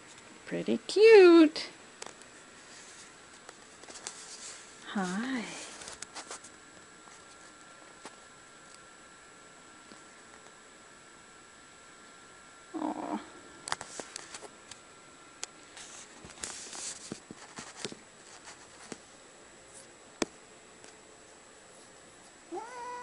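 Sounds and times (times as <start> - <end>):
soft clicks and rustles: 2.0 - 8.9, 13.6 - 19.1
cat meowing: 22.5 - 23.0.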